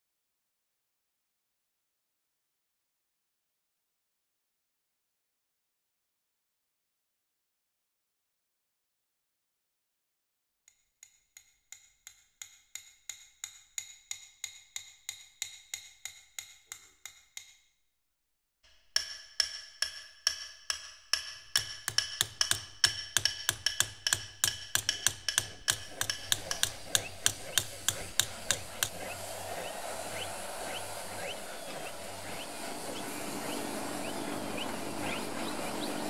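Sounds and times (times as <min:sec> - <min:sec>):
hiss: 0:24.8 - 0:36.0
low hum: 0:25.8 - 0:36.0.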